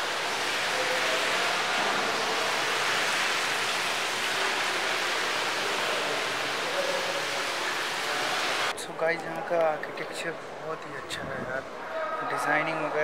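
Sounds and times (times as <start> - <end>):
water running from taps: 0.0 - 8.7.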